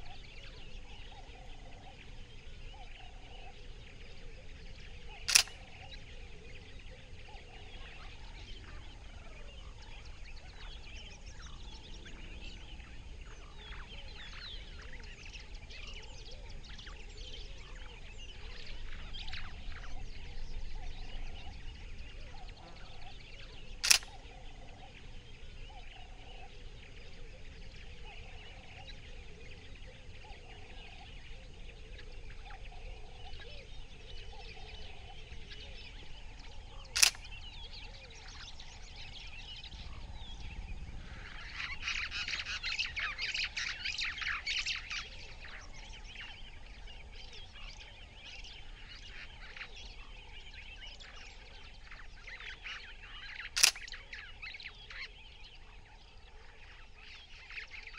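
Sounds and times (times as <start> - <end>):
birds chirping and calling: 0.0 - 57.9
camera shutter click: 5.2 - 5.7, 23.8 - 24.1, 37.0 - 37.3, 53.6 - 53.9.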